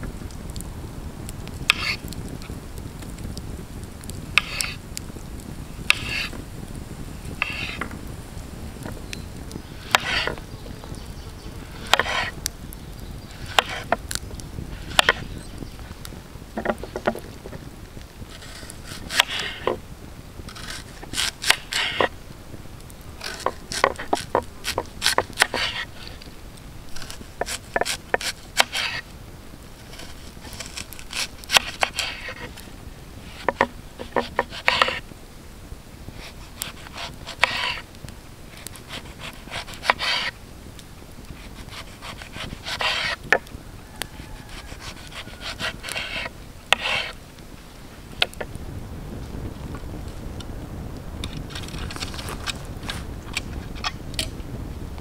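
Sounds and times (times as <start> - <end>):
knife cutting on wooden board: 5.9 - 6.3, 9.9 - 10.4, 11.8 - 12.3, 13.5 - 14.0, 23.2 - 25.9, 33.3 - 35.0, 36.7 - 37.8, 38.9 - 40.3, 41.5 - 43.2, 44.5 - 47.1.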